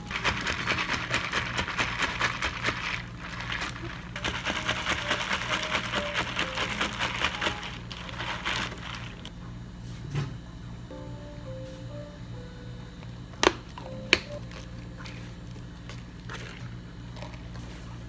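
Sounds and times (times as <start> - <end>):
ice cubes clinking in plastic cup: 0.1 - 9.3.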